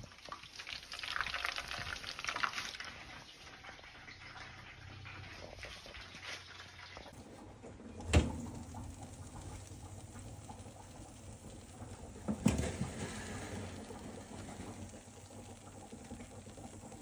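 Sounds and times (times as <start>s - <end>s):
oven hum: 7.2s - 17.0s.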